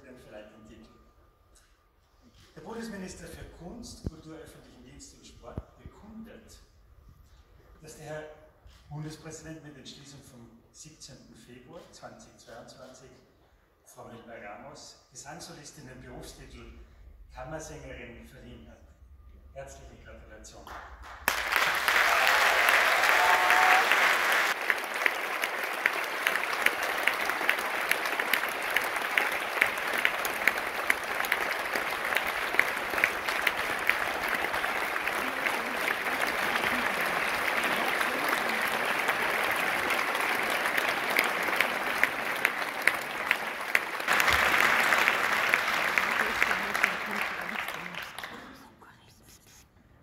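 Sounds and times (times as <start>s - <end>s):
audience applauding: 20.7s - 48.6s.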